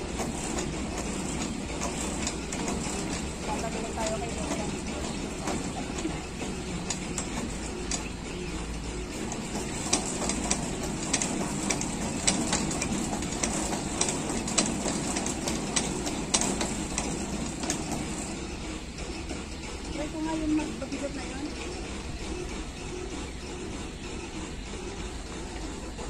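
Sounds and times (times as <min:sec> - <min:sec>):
exercise machine clicking and knocking: 0:00.0 - 0:26.0.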